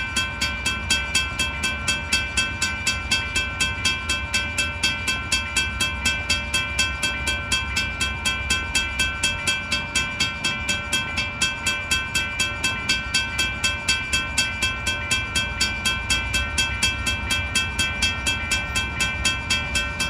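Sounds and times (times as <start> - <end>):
crossing bell ringing rapidly: 0.0 - 20.0.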